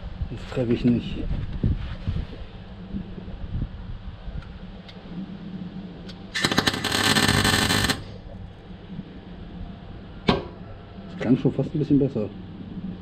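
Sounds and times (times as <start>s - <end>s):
welding arc crackling: 6.3s - 8.2s.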